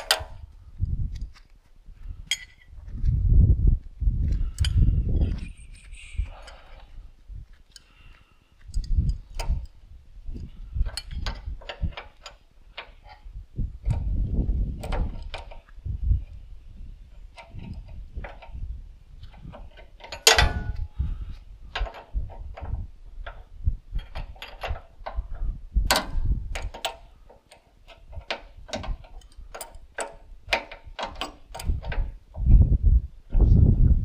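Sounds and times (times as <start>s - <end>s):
metallic clicks of hand tools: 0.0s - 0.4s, 2.3s - 2.7s, 4.3s - 6.9s, 7.6s - 14.1s, 14.8s - 15.8s, 17.3s - 18.6s, 19.2s - 21.0s, 21.7s - 32.1s
loud metal clanks: 19.7s - 21.0s.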